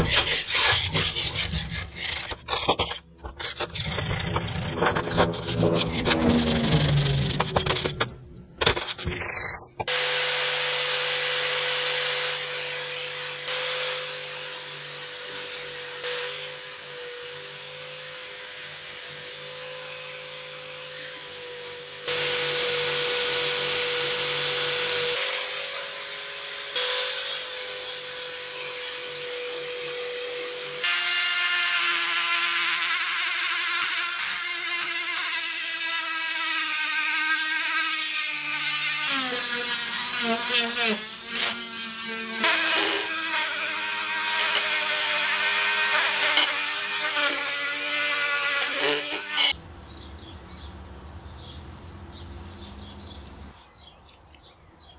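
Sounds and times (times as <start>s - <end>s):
wire wheel scrubbing metal: 0.0s - 9.8s, 33.6s - 35.5s, 39.6s - 49.6s
rotary tool whining: 0.0s - 10.0s, 32.0s - 49.6s
electric drill running: 29.1s - 49.6s.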